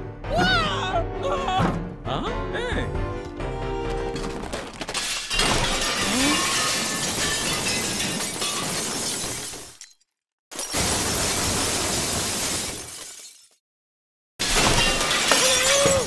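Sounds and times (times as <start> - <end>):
crockery falling and smashing: 4.0 - 13.6, 14.4 - 16.0.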